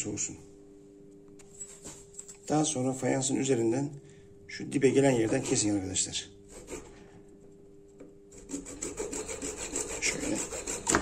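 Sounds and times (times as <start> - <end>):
hacksaw sawing plastic pipe: 6.5 - 6.9, 8.4 - 11.0.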